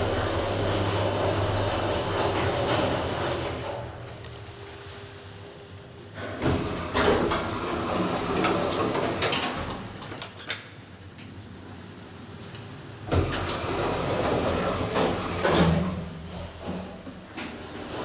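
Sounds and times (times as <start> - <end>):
elevator doors knocking shut: 0.0 - 4.0
elevator doors sliding: 0.0 - 4.2, 6.1 - 10.2, 13.0 - 18.0.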